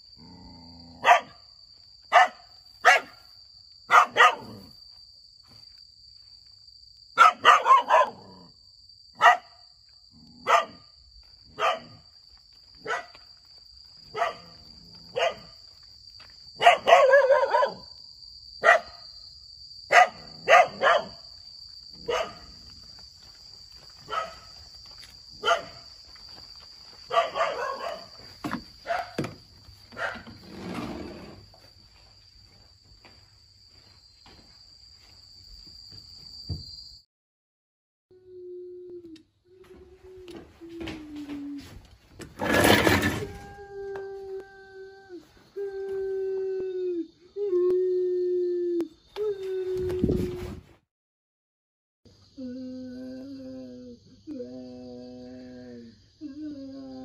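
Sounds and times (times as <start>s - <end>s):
small dog barking: 1.0s - 1.4s, 2.1s - 3.2s, 3.9s - 4.7s, 7.2s - 8.4s, 9.2s - 9.6s, 10.4s - 10.9s, 11.5s - 12.0s, 12.8s - 13.2s, 14.1s - 15.6s, 16.6s - 17.9s, 18.6s - 19.0s, 19.9s - 21.2s, 22.0s - 22.5s, 24.1s - 24.5s, 25.4s - 25.8s, 27.1s - 28.1s, 28.8s - 29.2s, 30.0s - 30.3s.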